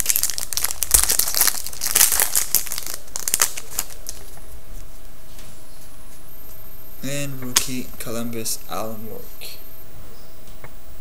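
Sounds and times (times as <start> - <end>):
foil wrapper tearing and crinkling: 0.0 - 4.4.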